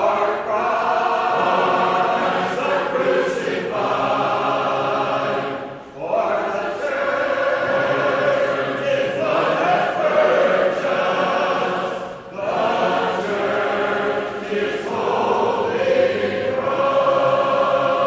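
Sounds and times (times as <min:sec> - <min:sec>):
vocal ensemble singing a hymn: 0:00.0 - 0:18.0.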